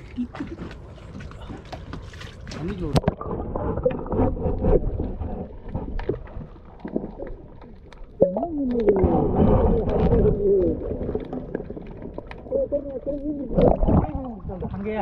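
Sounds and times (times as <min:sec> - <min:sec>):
water churning underwater: 0:00.0 - 0:15.0
muffled warbling voices: 0:12.4 - 0:15.0.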